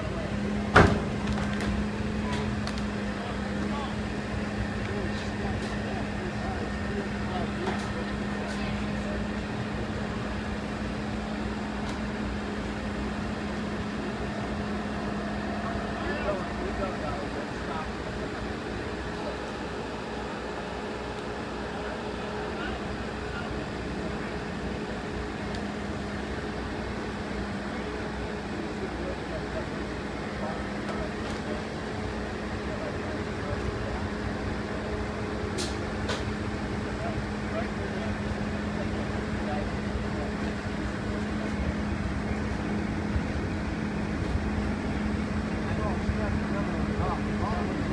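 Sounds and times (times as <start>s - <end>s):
diesel engine droning: 0.0s - 47.9s.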